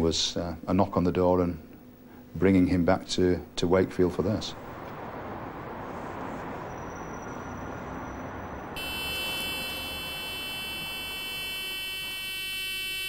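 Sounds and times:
background noise: 0.0s - 13.0s
electronic warning buzz: 8.8s - 13.0s.

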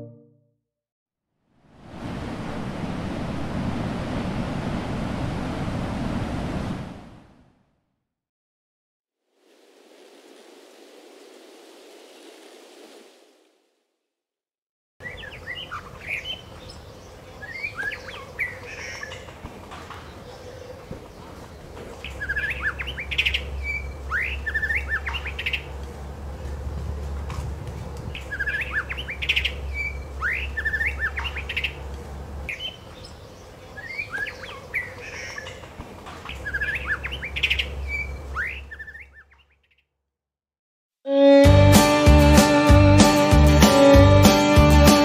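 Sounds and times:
guitar music: 0.0s - 0.4s, 41.1s - 45.0s
bird singing whistles and trills: 22.0s - 25.7s, 28.2s - 31.8s, 36.3s - 39.6s.

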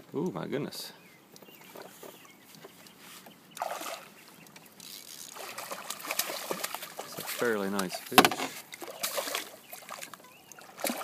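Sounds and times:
fish splashing in water: 3.6s - 4.2s, 5.0s - 11.0s.

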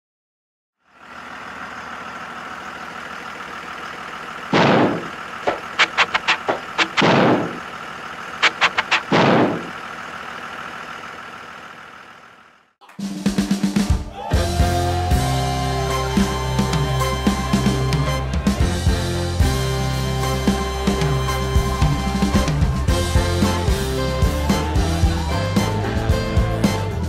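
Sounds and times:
bus engine idling: 0.8s - 12.7s, 14.1s - 27.0s
loud hissing bursts: 4.6s - 7.6s, 8.4s - 9.7s
runs of sharp clicks: 4.6s - 7.6s, 8.4s - 9.7s.

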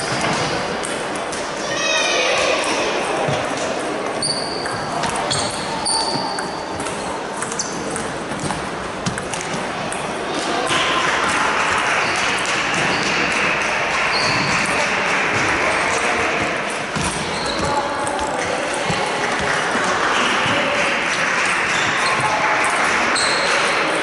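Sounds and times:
murmur of voices: 0.0s - 24.0s
table-tennis ball clicking: 6.3s - 10.1s.

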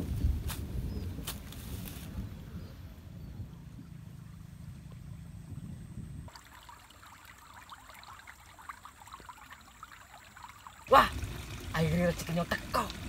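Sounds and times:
trickling pattering water: 6.3s - 13.0s.

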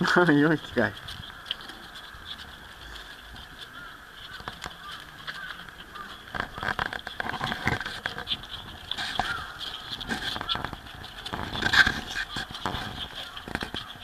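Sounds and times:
trotters clicking on paving: 0.0s - 14.0s
piglets squeaking and grunting: 7.5s - 14.0s.

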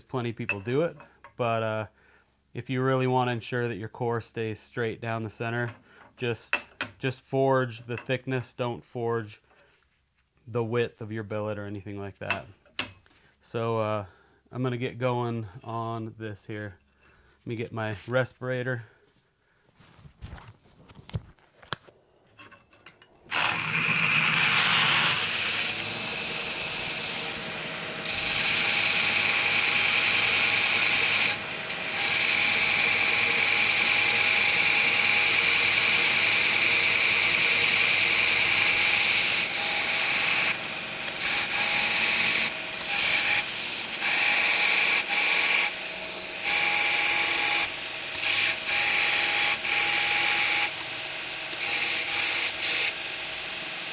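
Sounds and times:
belt grinder grinding steel: 22.4s - 53.9s.

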